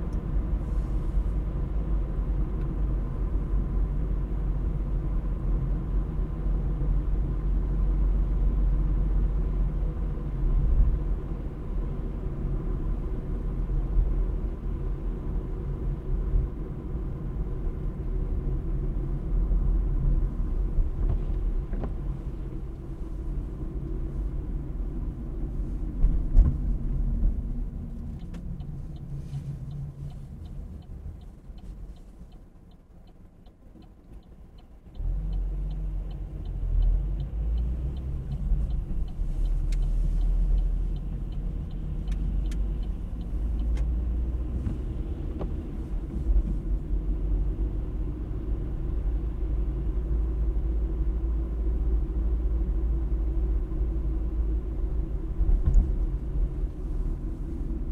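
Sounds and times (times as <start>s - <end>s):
car engine and tyres rumbling: 0.0s - 57.9s
light even ticking: 26.6s - 46.1s.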